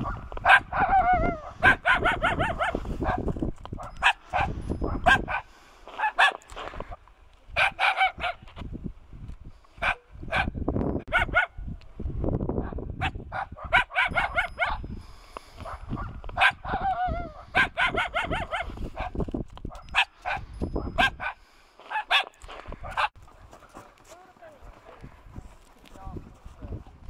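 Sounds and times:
dog barking: 0:00.0 - 0:06.4, 0:07.6 - 0:08.4, 0:09.8 - 0:11.6, 0:12.6 - 0:14.8, 0:15.6 - 0:19.2, 0:19.9 - 0:23.2.

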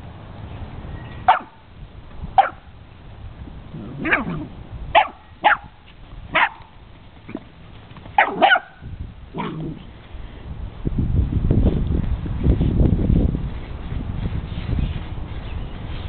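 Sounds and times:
dog barking: 0:01.3 - 0:01.6, 0:02.4 - 0:02.6, 0:04.0 - 0:06.7, 0:08.2 - 0:08.8.

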